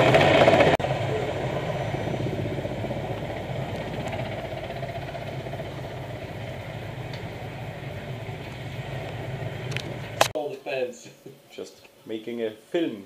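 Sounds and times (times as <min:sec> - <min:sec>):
helicopter turbine and rotor: 0:00.0 - 0:10.3.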